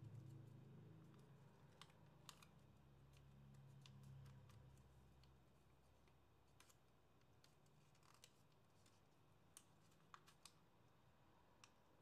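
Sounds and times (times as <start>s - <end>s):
paper crackling as creased: 6.4s - 10.6s.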